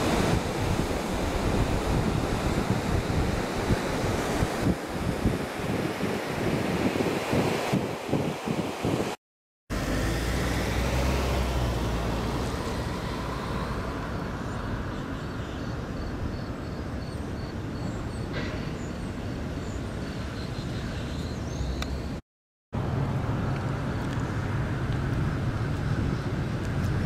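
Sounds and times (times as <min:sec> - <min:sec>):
wind on microphone: 0:00.0 - 0:09.2
road traffic: 0:09.7 - 0:22.2, 0:22.8 - 0:27.0.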